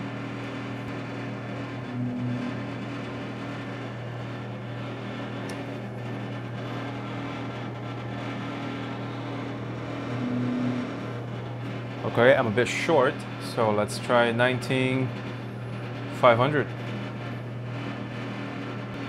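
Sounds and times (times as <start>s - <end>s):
laser engraver machine hum: 0.0s - 13.4s
higher tone from moving head: 2.0s - 2.7s, 10.1s - 11.1s.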